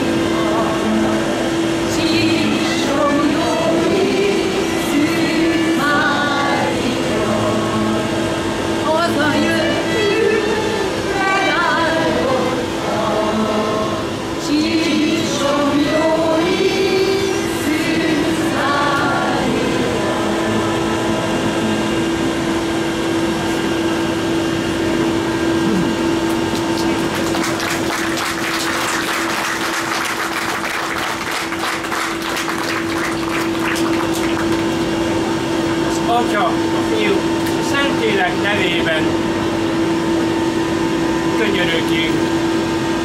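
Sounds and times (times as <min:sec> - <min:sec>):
choir singing a hymn: 0:00.0 - 0:22.8.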